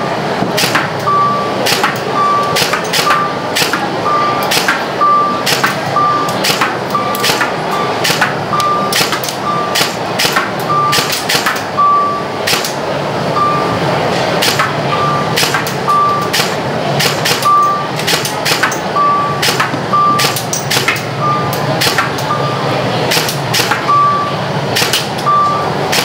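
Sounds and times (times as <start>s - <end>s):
crowd hubbub: 0.0s - 26.0s
short high electronic beeps: 1.0s - 9.8s, 10.7s - 11.1s, 13.3s - 13.8s, 14.8s - 16.4s, 17.4s - 18.0s, 18.8s - 20.5s, 21.2s - 22.7s, 23.8s - 24.4s, 25.2s - 25.8s
airsoft rifle shots clicking: 8.9s - 11.6s, 19.4s - 21.0s, 23.1s - 23.8s.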